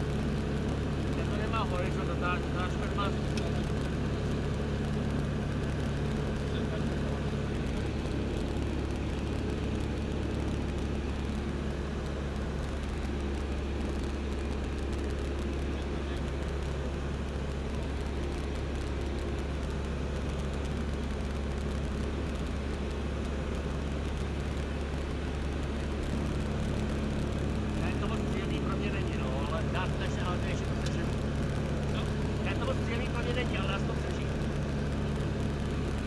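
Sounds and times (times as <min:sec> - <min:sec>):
aircraft engine and propeller droning: 0:00.0 - 0:36.0.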